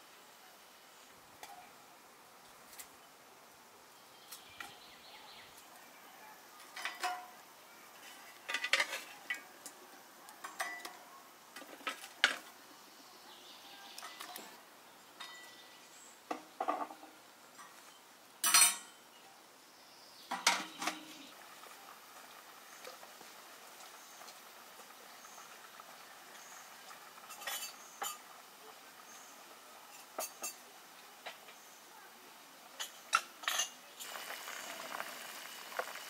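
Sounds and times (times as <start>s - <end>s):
dishes and cutlery clinking: 6.8s - 7.3s, 8.5s - 9.2s, 10.4s - 11.0s, 15.2s - 15.6s, 18.4s - 19.0s, 27.3s - 28.2s, 29.9s - 30.6s, 32.8s - 33.8s.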